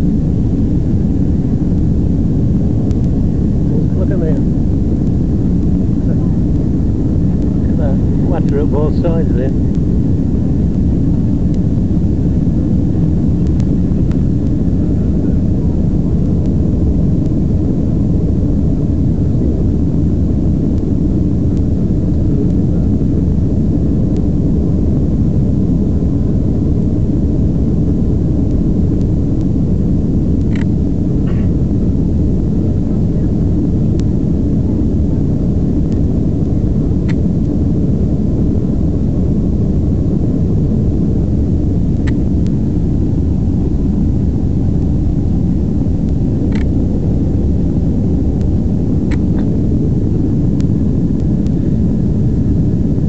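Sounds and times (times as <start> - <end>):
airplane cabin roar: 0.0 - 53.0
faint clicks: 46.5 - 46.7.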